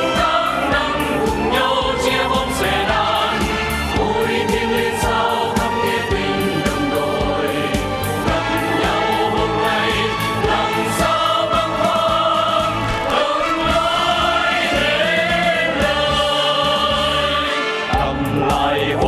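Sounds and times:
choir singing: 0.0 - 19.0
instrumental accompaniment: 0.0 - 19.0.

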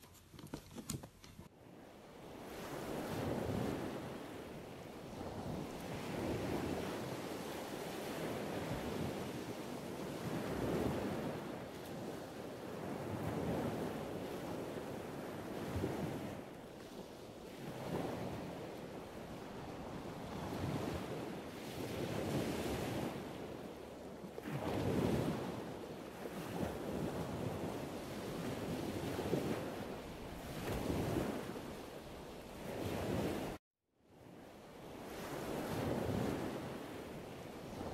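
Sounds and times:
wind buffeting microphone: 2.3 - 23.8.

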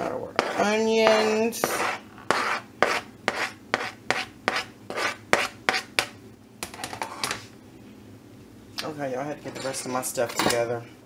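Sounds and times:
spoon scraping a plastic board: 0.4 - 6.1.

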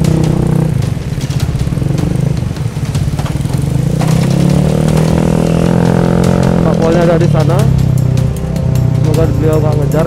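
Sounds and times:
scooter engine running: 0.0 - 10.0.

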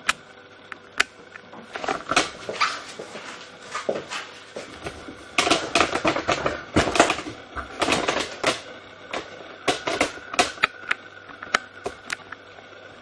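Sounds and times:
sharp irregular clicks and knocks: 5.4 - 12.4.

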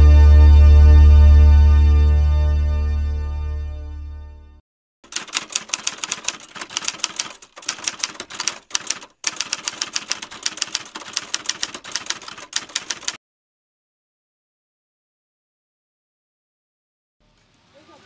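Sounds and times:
typewriter key clicks: 5.1 - 13.2.

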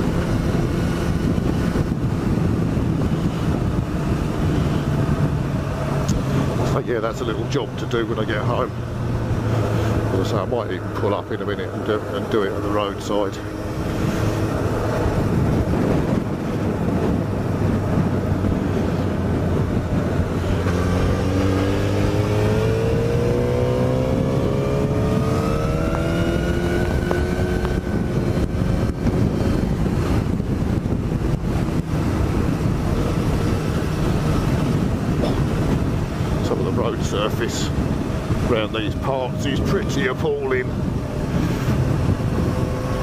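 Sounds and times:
motorcycle engine running: 0.0 - 43.0
wind noise: 0.0 - 43.0.

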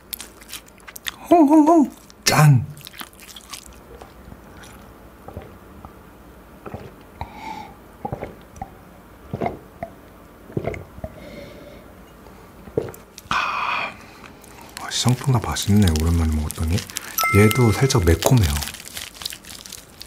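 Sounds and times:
person gulping beer: 2.8 - 6.0, 6.6 - 7.4, 8.0 - 11.2, 12.7 - 13.3.

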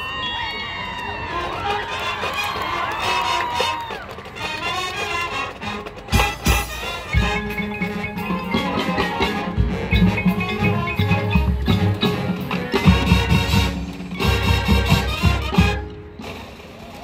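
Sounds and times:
marching band playing: 1.3 - 17.0
mallet percussion: 6.1 - 15.8.

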